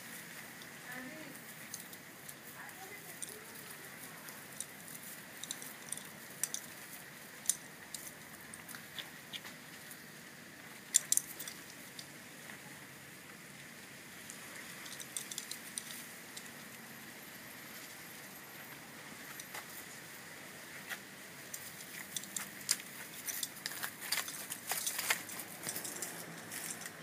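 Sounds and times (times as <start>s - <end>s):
puppies scuffling in grass: 0.0s - 12.6s, 17.6s - 27.0s.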